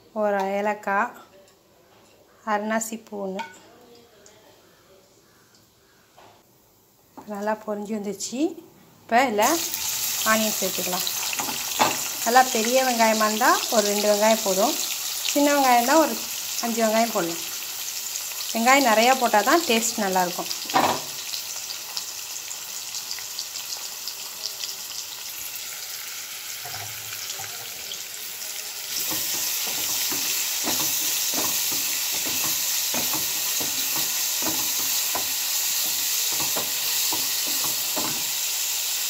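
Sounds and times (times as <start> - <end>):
onions sizzling in oil: 9.2 - 39.0
spatula scraping a pan: 28.9 - 38.4.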